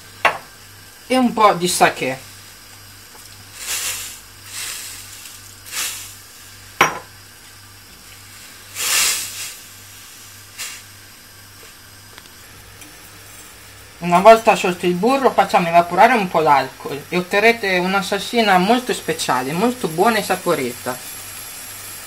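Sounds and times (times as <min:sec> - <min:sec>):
pan hissing and sizzling: 0:00.0 - 0:22.0.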